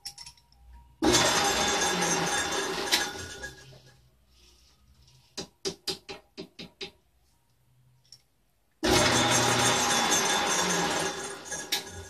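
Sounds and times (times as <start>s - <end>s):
metal lathe running: 8.8s - 12.0s.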